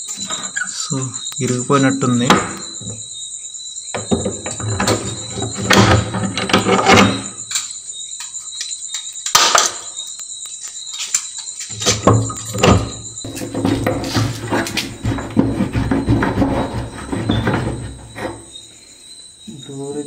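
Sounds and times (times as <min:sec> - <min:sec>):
metal bolt scraping and squealing: 0:04.1 - 0:07.7, 0:11.7 - 0:18.7.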